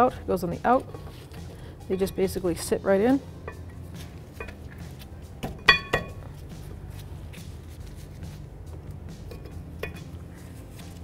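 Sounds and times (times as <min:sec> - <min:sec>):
soft background music: 0:00.0 - 0:11.0
brake pads metallic clinks: 0:05.4 - 0:06.3.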